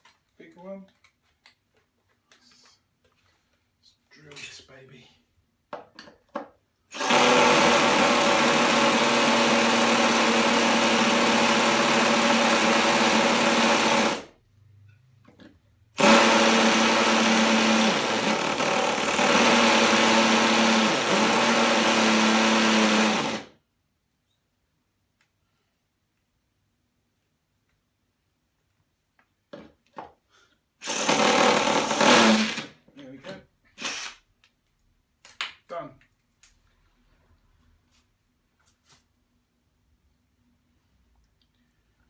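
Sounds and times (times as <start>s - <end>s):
drill boring into ceramic tile: 6.9s - 14.3s, 16.0s - 23.5s, 30.8s - 32.8s, 33.8s - 34.2s.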